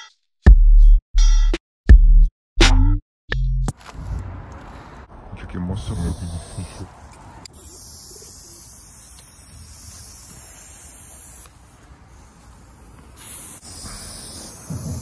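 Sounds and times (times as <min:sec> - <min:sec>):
spray paint can hissing: 0:07.4 - 0:15.0.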